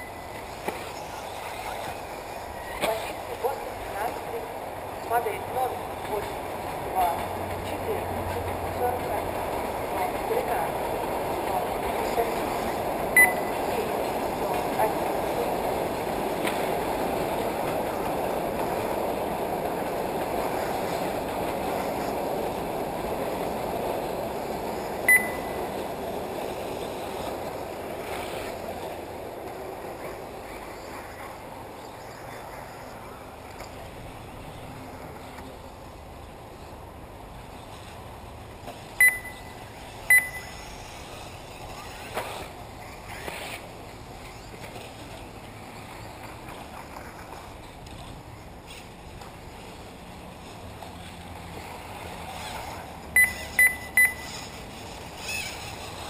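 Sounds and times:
steady rushing noise: 0.0s - 56.0s
short high electronic beeps: 13.2s - 13.6s, 25.1s - 25.6s, 39.0s - 40.7s, 53.2s - 54.5s.

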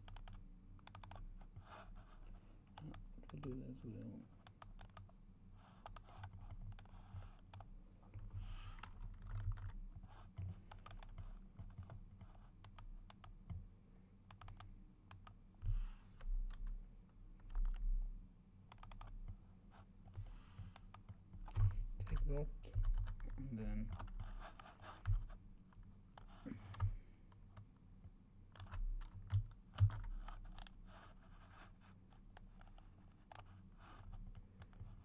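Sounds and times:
keyboard and mouse clicking: 0.0s - 1.3s, 4.4s - 5.1s, 5.8s - 7.7s, 8.7s - 9.8s, 10.4s - 13.6s, 14.3s - 15.4s, 17.4s - 17.8s, 18.7s - 19.4s, 20.6s - 23.3s, 28.5s - 30.8s, 32.3s - 33.5s
low steady hum: 0.0s - 35.0s.

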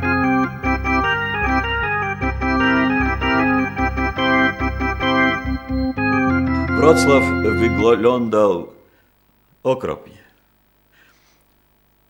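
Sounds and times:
organ-like keyboard music: 0.0s - 9.0s.

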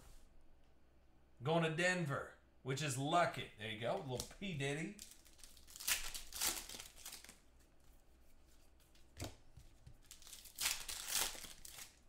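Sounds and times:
foil wrapper crinkling: 5.0s - 7.4s, 10.0s - 12.0s.

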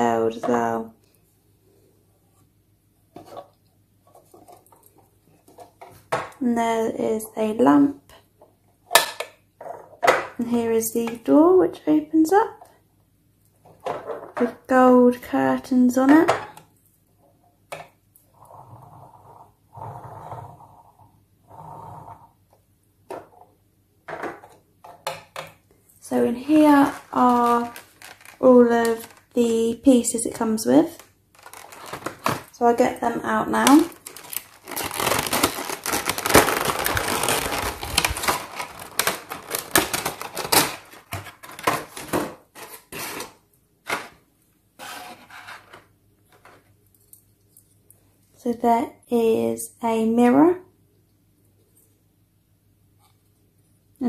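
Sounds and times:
plastic wheels rolling on table: 18.3s - 22.4s
plastic packaging crinkling: 26.4s - 29.4s, 30.9s - 32.6s, 33.5s - 43.3s.

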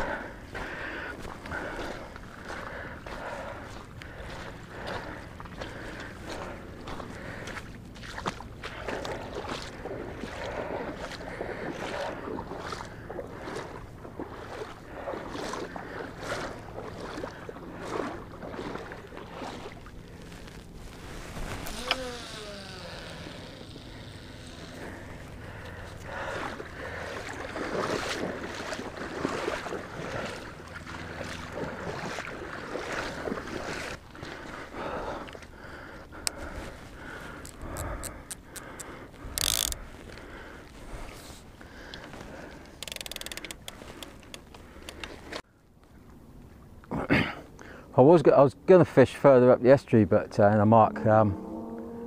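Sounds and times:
water lapping and splashing: 0.0s - 52.0s
fishing line whirring off reel: 20.5s - 25.4s, 39.2s - 39.9s, 42.8s - 44.3s
fishing reel click: 37.4s - 39.8s, 42.8s - 45.0s.

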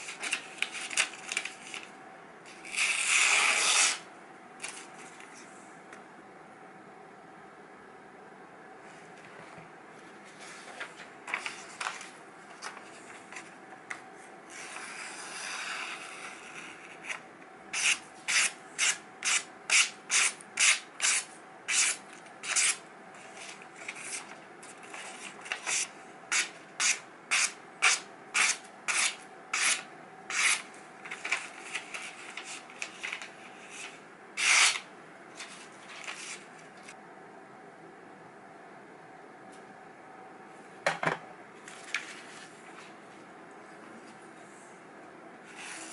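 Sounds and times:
knife slicing paper: 17.8s - 22.8s, 23.4s - 36.5s.

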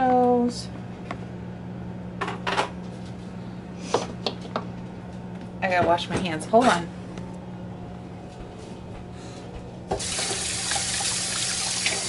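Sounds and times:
faucet water running into sink: 10.0s - 12.0s.

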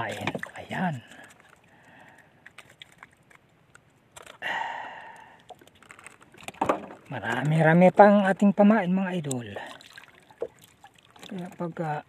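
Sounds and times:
breathy exhale: 4.4s - 5.5s.

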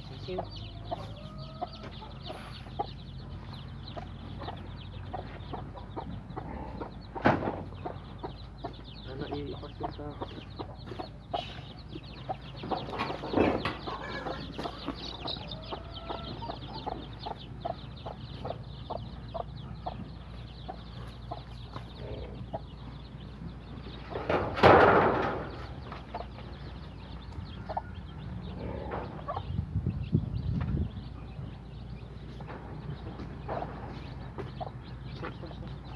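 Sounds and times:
chicks peeping: 0.0s - 35.9s
hen clucking: 0.0s - 35.9s.

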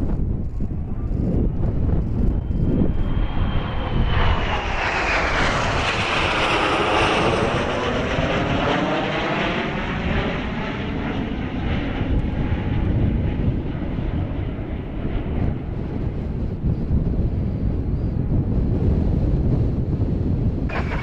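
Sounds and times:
high jet whine: 0.0s - 21.0s
jet aircraft roaring past: 0.0s - 21.0s.

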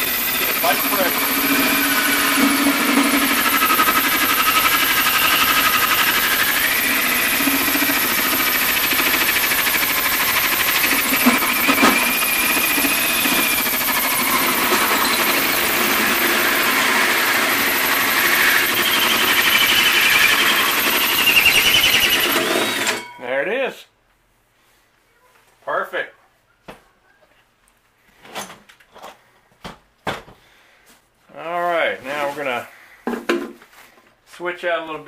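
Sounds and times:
drill cutting through sheet steel: 0.0s - 23.1s.

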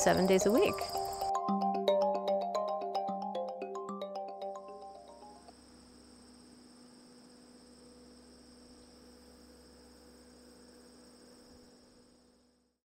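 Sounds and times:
faint electrical hum: 5.2s - 12.8s.

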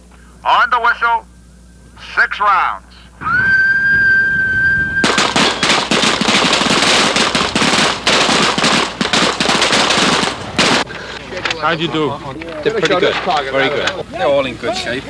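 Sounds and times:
whistle blast: 3.2s - 5.7s.

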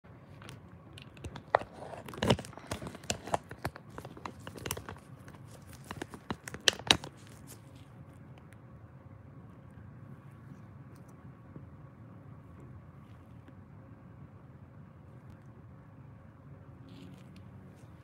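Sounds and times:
rustling and crinkling: 0.1s - 8.6s, 16.8s - 18.0s.

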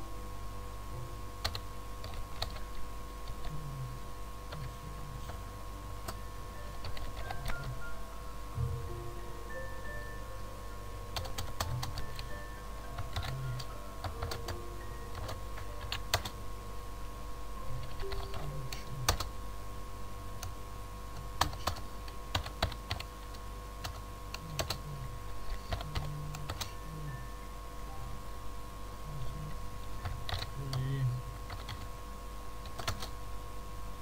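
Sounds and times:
low steady hum: 0.0s - 34.0s
keyboard typing: 1.4s - 3.6s, 6.0s - 7.9s, 11.1s - 16.4s, 17.8s - 19.3s, 21.4s - 24.9s, 25.5s - 26.8s, 30.0s - 30.9s, 31.5s - 31.9s, 32.6s - 33.2s.

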